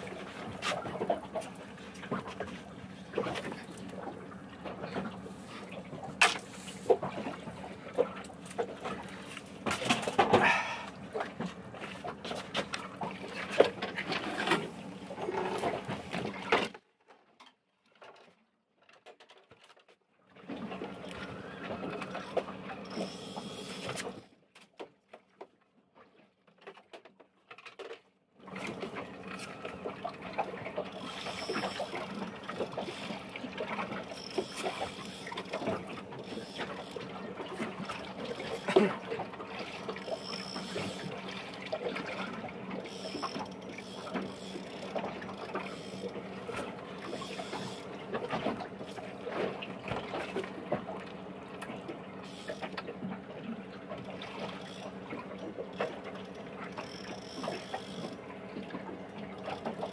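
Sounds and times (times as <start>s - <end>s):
fishing reel whirring: 21.1s - 24.0s, 30.9s - 37.1s, 39.6s - 41.5s, 42.2s - 47.9s, 52.2s - 52.8s, 54.2s - 58.2s.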